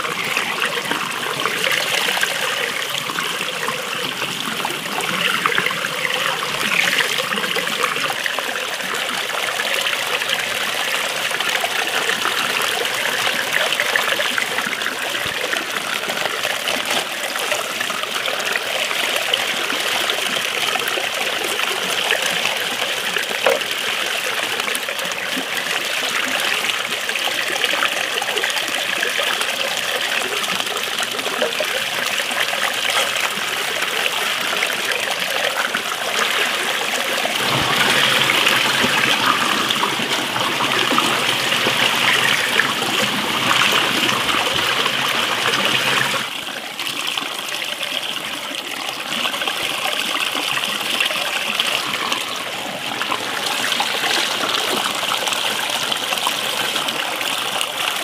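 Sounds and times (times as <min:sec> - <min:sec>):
running water splashing on cabbage: 0:29.7 - 0:46.3.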